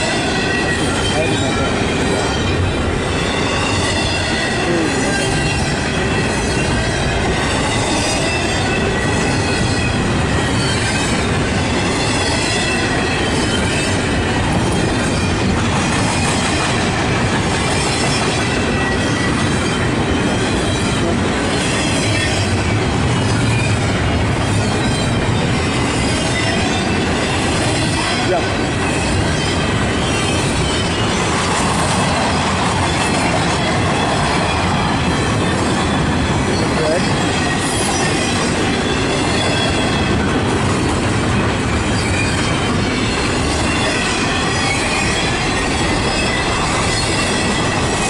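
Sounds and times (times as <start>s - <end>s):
freight train cars rumbling past: 0.0s - 48.0s
high-pitched wheel squeal: 32.8s - 40.3s, 41.7s - 48.0s.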